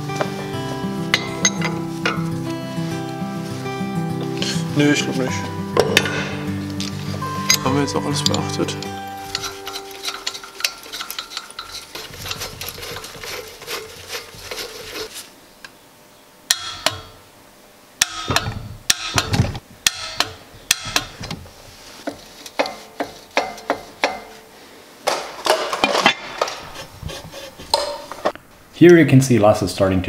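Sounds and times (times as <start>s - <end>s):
steel parts clinking: 1.1s - 2.3s, 5.8s - 15.1s
metal cover scraping rattle: 1.1s - 2.4s, 5.8s - 15.2s
wrench clicking: 8.3s - 12.3s.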